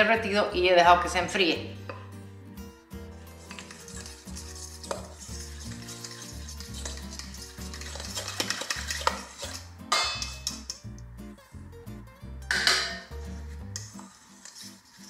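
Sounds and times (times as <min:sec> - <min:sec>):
soft background music: 0:00.0 - 0:15.0
fork scraping metal bowl: 0:03.1 - 0:10.9, 0:12.6 - 0:15.0.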